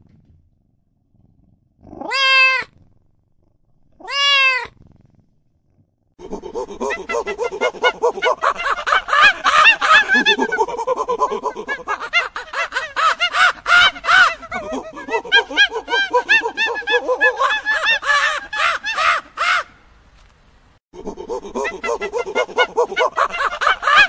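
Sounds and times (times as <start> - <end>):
macaques calling: 6.2 - 19.7, 21.0 - 24.0.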